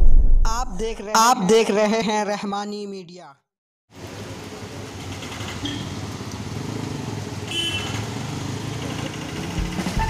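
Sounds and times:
heavy rain on a street: 3.9 - 10.0
traffic rumble: 4.0 - 10.0.

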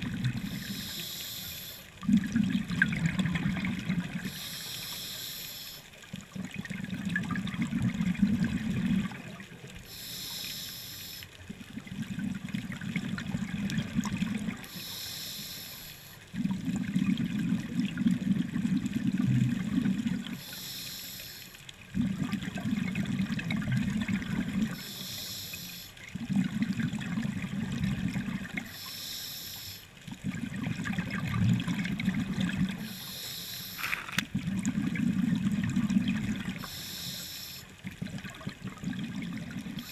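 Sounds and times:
regulator inhale hiss: 0.4 - 1.9, 4.2 - 5.9, 9.8 - 11.4, 14.6 - 16.2, 20.4 - 21.6, 24.7 - 26.0, 28.6 - 29.9, 32.8 - 34.2, 36.6 - 37.7.

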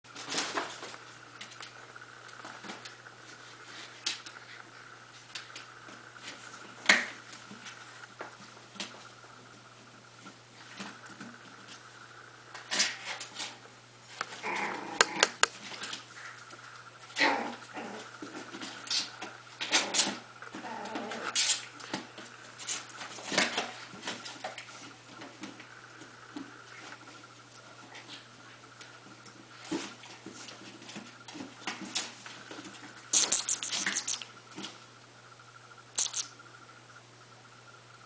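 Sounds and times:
puppy noises: 14.2 - 23.5, 31.9 - 34.4, 36.0 - 36.4.

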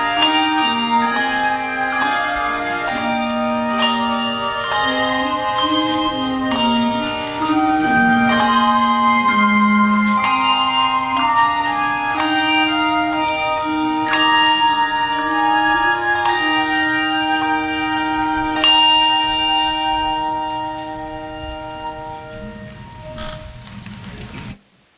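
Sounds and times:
handbells ringing chords: 0.0 - 23.6
bass clarinet low held note: 3.4 - 12.2, 20.8 - 24.5.

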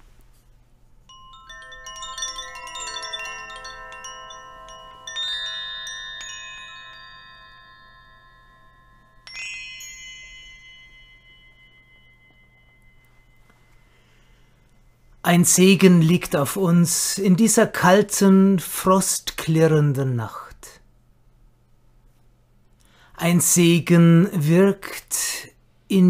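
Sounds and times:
metal chimes ringing: 1.1 - 15.2.

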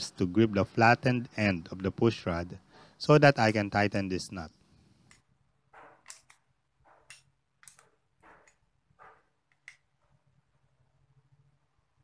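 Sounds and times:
wrench scraping and clicking on nut: 5.1 - 9.9.

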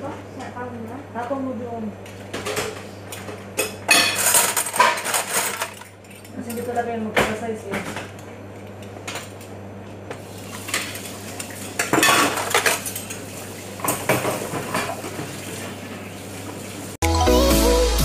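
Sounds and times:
dishes and cutlery clattering: 2.4 - 6.8, 10.6 - 13.2, 13.8 - 15.4.

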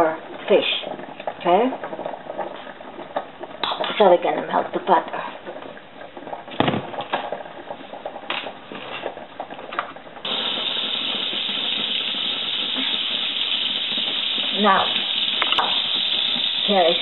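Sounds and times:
butter crackling in a pan: 0.6 - 17.0
butter sizzling: 10.2 - 17.0.

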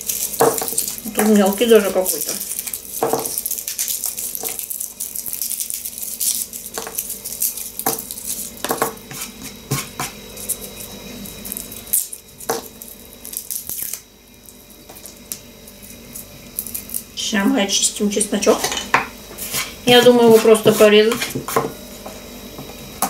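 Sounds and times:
garlic skin crackling: 0.0 - 17.2.

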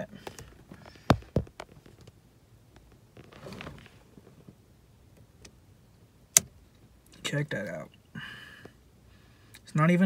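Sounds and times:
soft rustle: 0.2 - 4.6.

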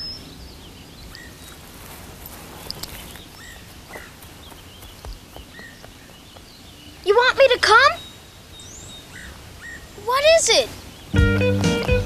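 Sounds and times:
faint bird chirps: 0.0 - 1.7, 2.6 - 11.2.

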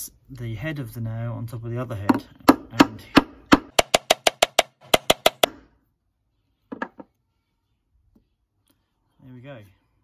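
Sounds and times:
hammer tapping metal nail: 2.4 - 5.6.

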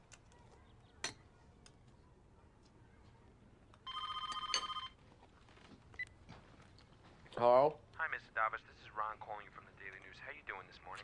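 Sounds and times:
telephone ringing: 3.8 - 5.0.

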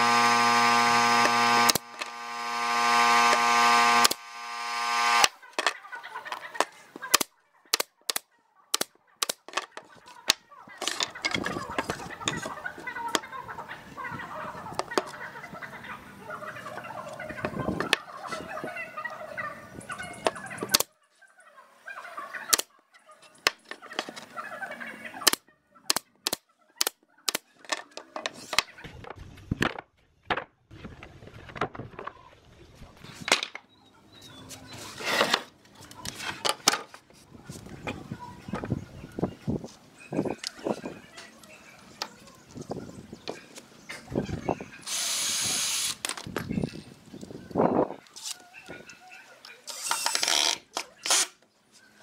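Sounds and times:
chickens calling: 0.0 - 29.1, 31.8 - 52.0
nail gun firing into wood: 49.7 - 51.4.

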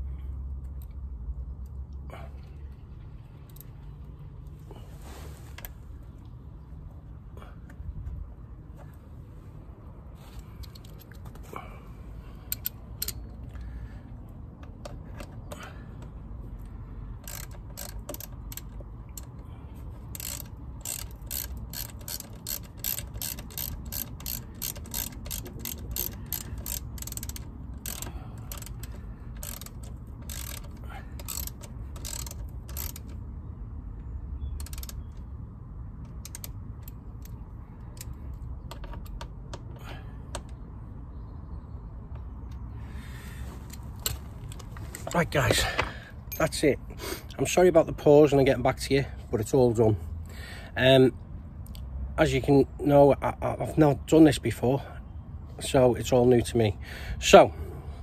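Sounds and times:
hand ratchet clicking: 12.5 - 13.7, 17.1 - 33.2, 34.6 - 35.2, 36.0 - 40.6.

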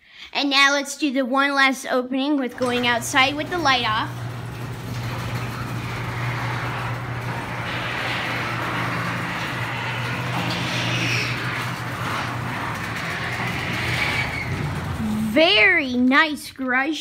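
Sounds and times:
garage door opener motor hum: 2.5 - 16.0.

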